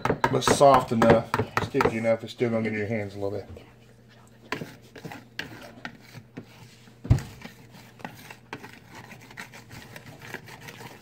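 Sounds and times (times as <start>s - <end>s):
dough thump: 0.0s - 2.0s
dough worked in mixing bowl: 0.0s - 11.0s.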